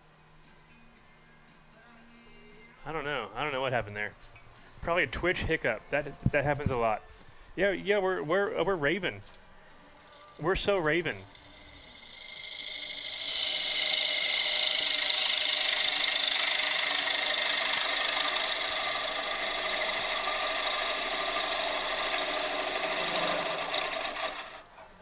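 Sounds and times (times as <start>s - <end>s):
lathe running hum: 0.0s - 24.8s
gouge cutting wood on lathe: 10.9s - 24.6s.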